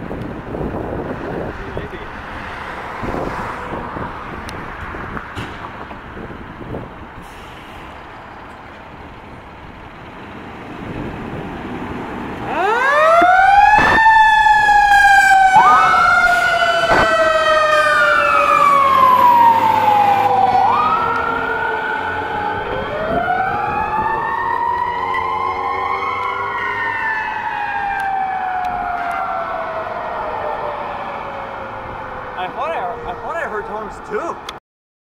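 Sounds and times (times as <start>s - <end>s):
fire engine rumble: 0.0s - 34.5s
siren wailing: 12.4s - 34.2s.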